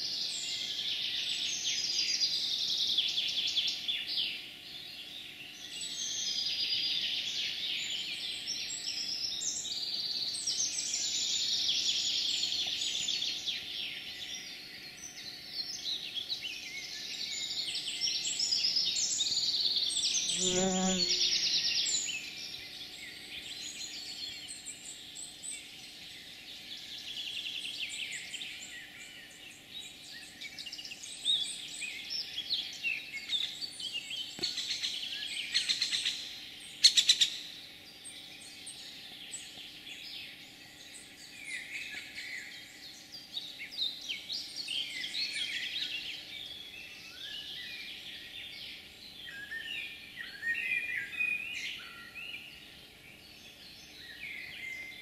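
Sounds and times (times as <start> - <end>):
small birds chirping and trilling: 0.0 - 55.0.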